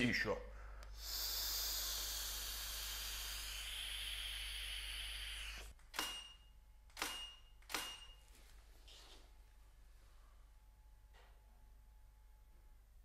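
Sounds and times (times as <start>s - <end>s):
breath exhaling with hiss: 0.9s - 5.7s
camera shutter clicks: 7.0s - 8.1s.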